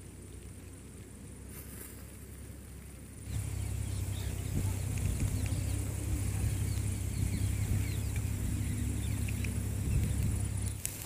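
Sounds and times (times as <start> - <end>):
low steady rumble: 0.0 - 11.0
bird chirps: 3.3 - 11.0.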